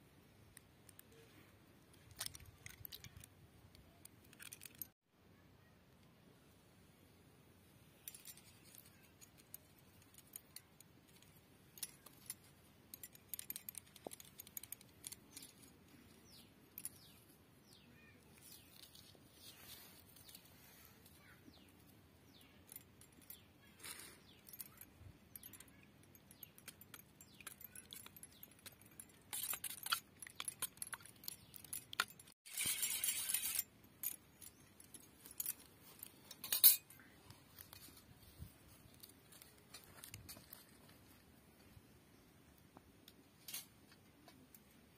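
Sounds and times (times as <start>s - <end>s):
bangles jingling: 7.9s - 40.7s.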